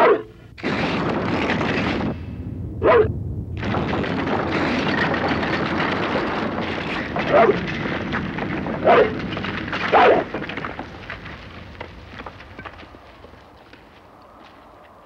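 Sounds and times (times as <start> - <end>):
large dog barking: 0.0 - 0.3, 2.8 - 3.1, 7.2 - 7.6, 8.8 - 9.2, 9.8 - 10.3
rushing crackling noise: 0.0 - 15.0.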